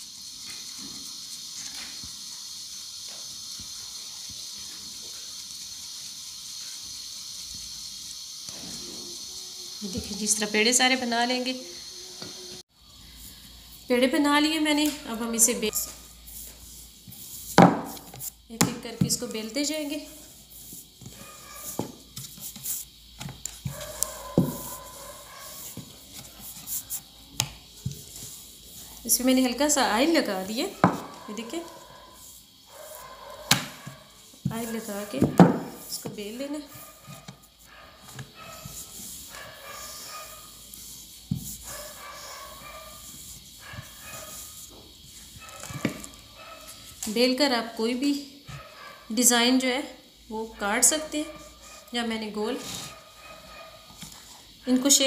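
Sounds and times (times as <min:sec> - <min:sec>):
steady high hiss: 0:00.0 - 0:55.0
hands rubbing dough: 0:19.1 - 0:47.2.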